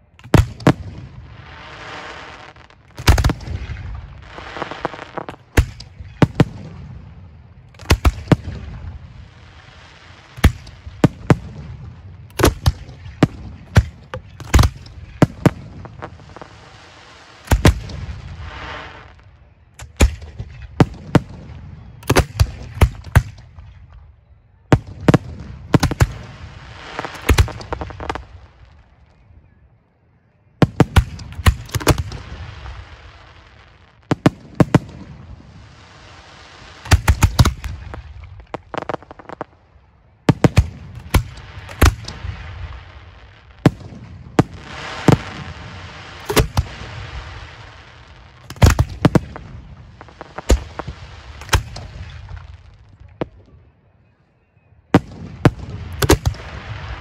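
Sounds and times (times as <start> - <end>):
rushing hiss of fireworks: 0.3 - 6.7, 7.7 - 20.2, 25.1 - 29.2, 30.8 - 39.7, 40.3 - 53.4, 55.4 - 57.0
firework shells firing: 26.9 - 28.3, 36.8 - 39.4, 43.6 - 47.2, 48.4 - 52.4, 55.0 - 56.6.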